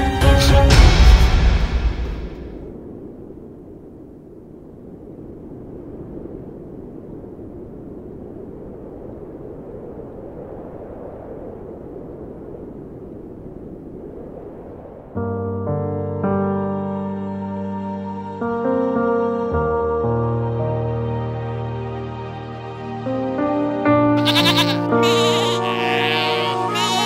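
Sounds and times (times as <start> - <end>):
steady rushing wind: 1.2 - 27.0
piano music: 15.3 - 27.0.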